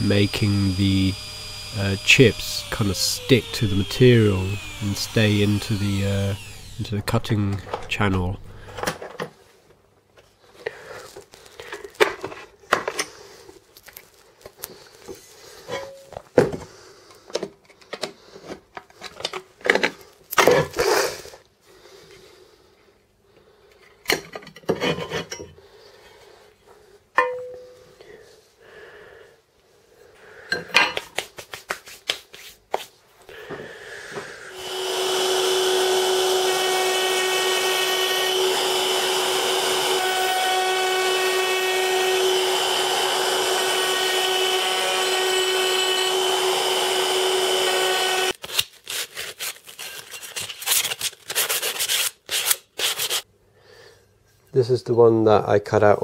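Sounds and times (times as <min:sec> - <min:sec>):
router humming: 0:00.0 - 0:09.0, 0:34.5 - 0:48.4.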